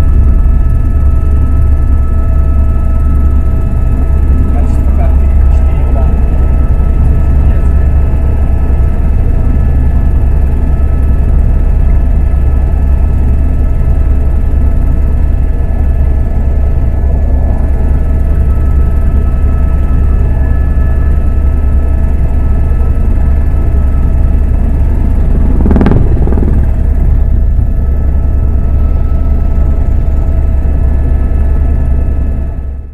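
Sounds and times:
helicopter cabin drone: 0.0s - 32.9s
helicopter whine: 0.0s - 32.9s
rush of noise: 23.1s - 28.7s.

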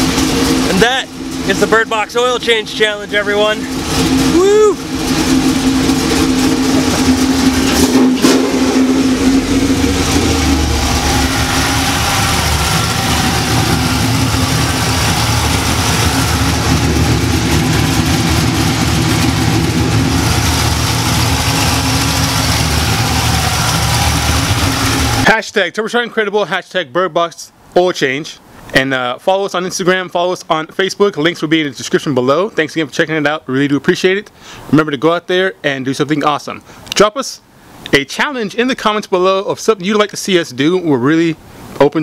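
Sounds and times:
car engine idling: 0.0s - 25.4s
steady hum: 0.0s - 25.4s.

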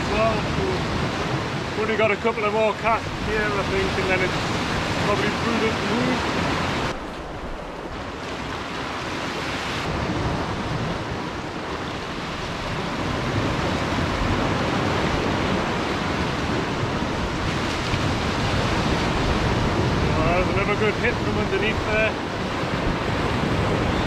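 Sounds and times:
waves breaking against rocks: 0.0s - 23.8s.

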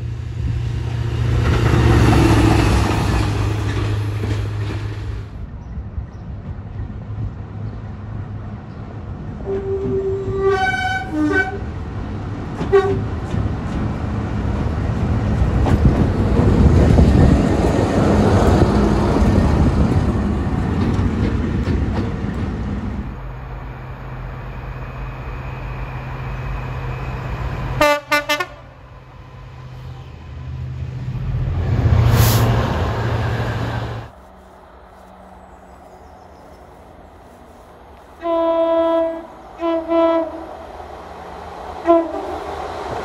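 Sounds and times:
locomotive horn: 9.4s - 11.7s, 12.6s - 13.0s, 27.8s - 28.8s, 38.2s - 40.5s, 41.8s - 42.4s
train horn notes: 9.4s - 11.7s, 12.7s - 13.0s, 27.8s - 28.8s, 38.2s - 40.5s, 41.8s - 42.4s.

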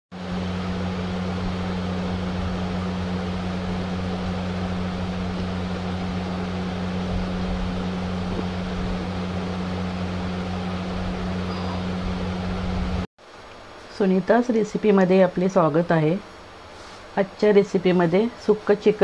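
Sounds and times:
steady electric hum: 0.1s - 19.0s
airy hiss: 13.7s - 18.9s.

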